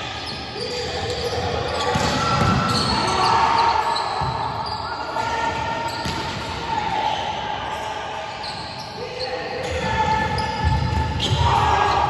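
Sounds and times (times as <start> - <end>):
players' voices: 0.0 - 12.0.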